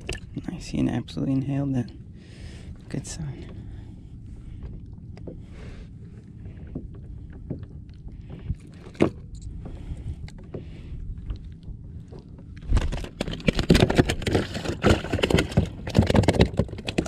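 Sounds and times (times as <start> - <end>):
scraping and knocking on microphone: 12.6 - 17.0.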